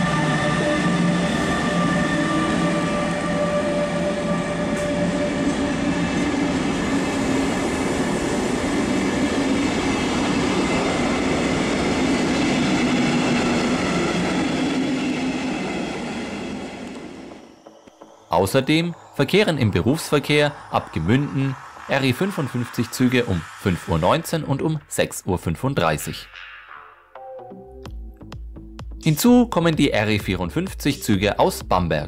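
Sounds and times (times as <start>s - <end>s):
electric locomotive whine: 0.0s - 24.8s.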